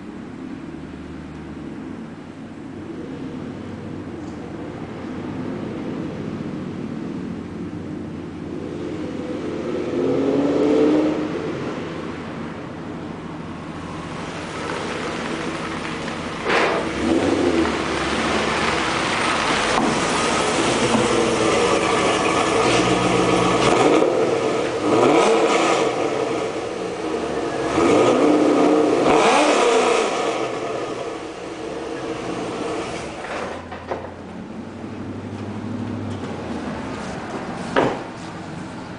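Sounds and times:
car engine accelerating hard: 13.8 - 33.7.

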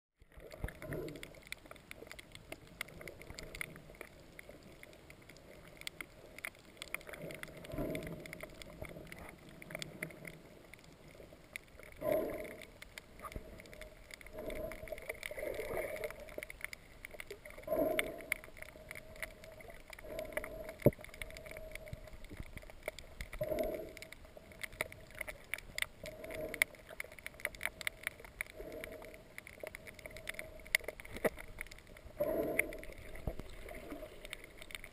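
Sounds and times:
small underwater clicks: 0.2 - 34.9.

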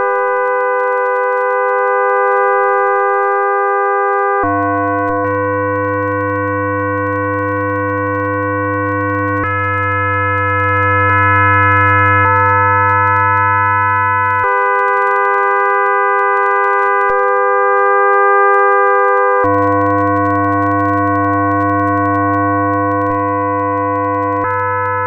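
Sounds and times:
sustained electronic tones: 0.0 - 25.0
low hum: 4.4 - 10.8.

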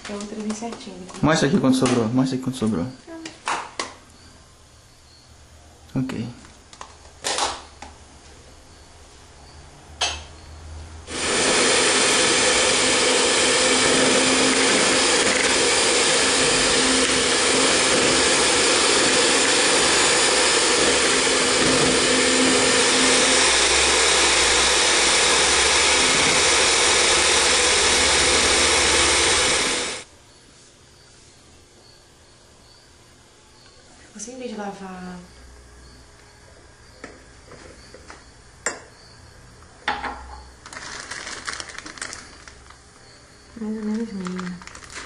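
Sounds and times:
stand mixer beaters running: 11.1 - 30.1.

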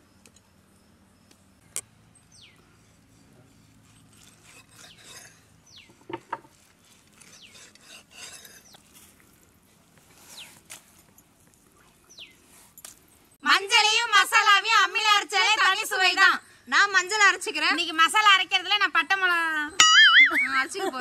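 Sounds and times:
fish scraping on wooden block: 3.2 - 9.0.

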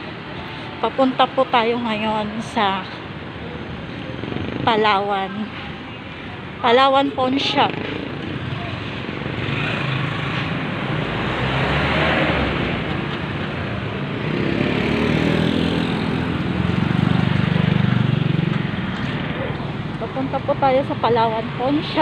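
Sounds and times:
road traffic: 0.0 - 22.0
vehicle engine passing close: 7.6 - 22.0.

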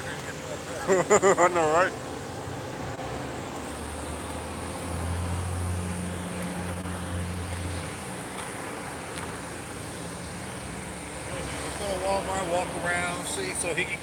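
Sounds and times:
low vehicle engine hum: 0.0 - 14.0.

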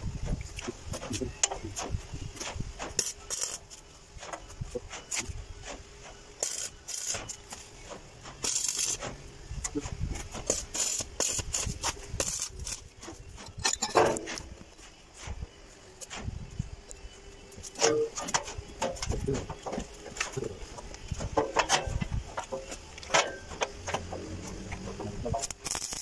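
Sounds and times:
short hissing bursts: 10.4 - 12.9
tools clanking on steel: 13.4 - 14.5, 21.3 - 25.6.

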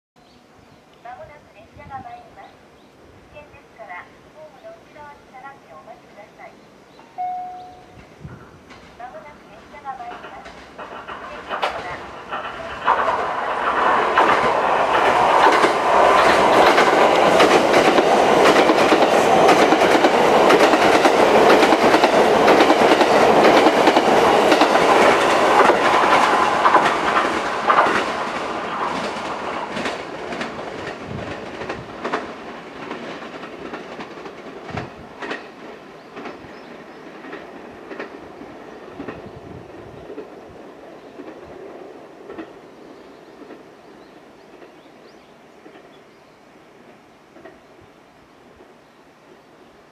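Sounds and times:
train passing at speed: 3.2 - 49.9
wheels clacking over rail joints: 8.0 - 9.2, 9.8 - 39.3.

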